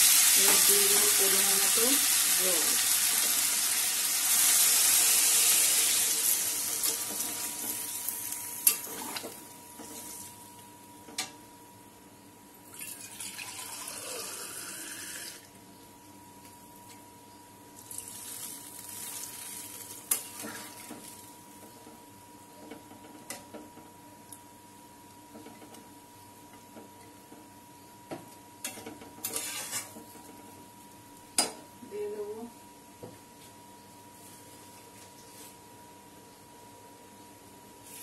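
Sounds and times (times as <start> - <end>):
water hissing in hot pan: 0.0 - 8.4
spatula scraping pan: 29.2 - 30.0.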